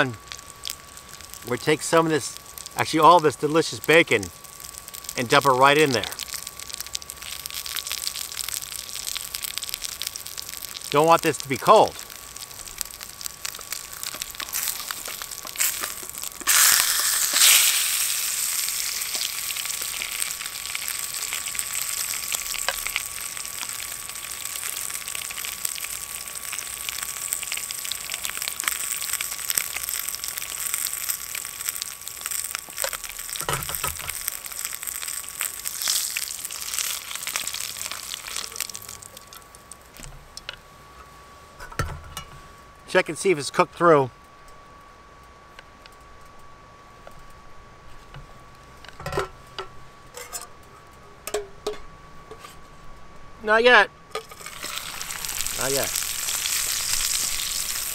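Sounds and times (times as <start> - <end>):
pork sizzling in a frying pan: 0.0 - 40.5, 53.7 - 57.9.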